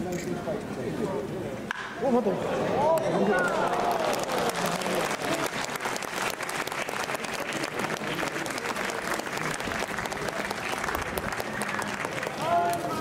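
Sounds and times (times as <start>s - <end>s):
crowd applauding: 3.3s - 13.0s.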